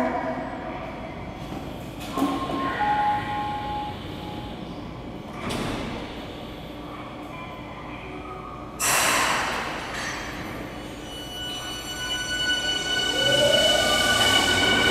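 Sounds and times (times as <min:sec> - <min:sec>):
train door air hiss: 0:08.8 - 0:09.7.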